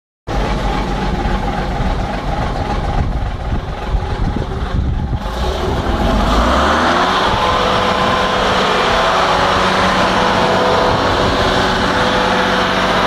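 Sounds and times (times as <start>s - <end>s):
diesel bus engine idling: 0.3s - 13.0s.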